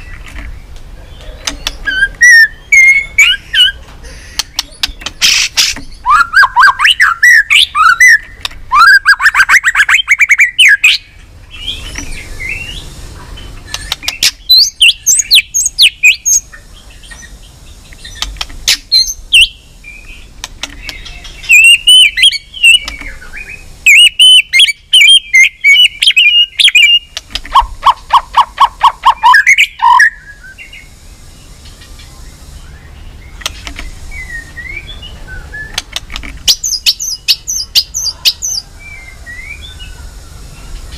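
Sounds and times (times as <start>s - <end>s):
bird singing whistled phrases: 1.5s - 4.6s, 5.3s - 12.8s, 13.7s - 16.4s, 18.9s - 20.3s, 20.9s - 27.1s, 28.1s - 30.9s, 34.1s - 35.8s.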